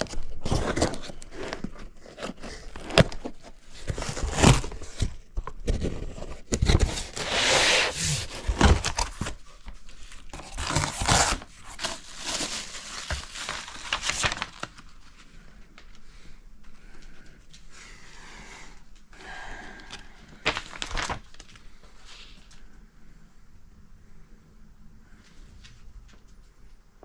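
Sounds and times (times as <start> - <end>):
cardboard and paper rustling: 0.0 - 17.7, 19.8 - 22.6
bubble wrap crinkling: 6.4 - 16.0, 20.2 - 22.6.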